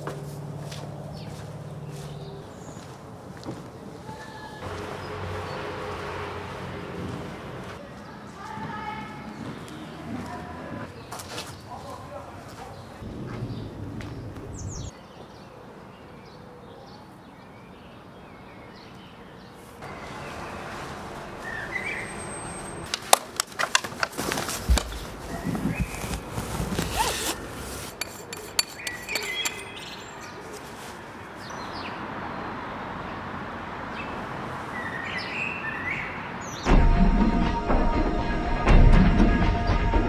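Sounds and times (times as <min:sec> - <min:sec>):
bird chirps: 0:13.5 - 0:19.2, 0:21.4 - 0:22.9, 0:28.3 - 0:30.6
backpack handling clicks and rustles: 0:22.9 - 0:28.5.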